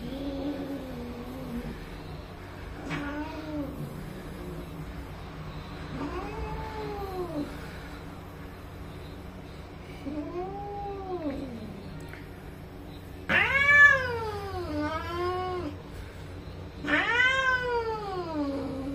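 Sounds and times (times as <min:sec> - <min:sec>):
cats yowling: 0:02.7 - 0:04.8, 0:05.9 - 0:07.6, 0:10.0 - 0:12.3, 0:13.2 - 0:15.8, 0:16.8 - 0:18.9.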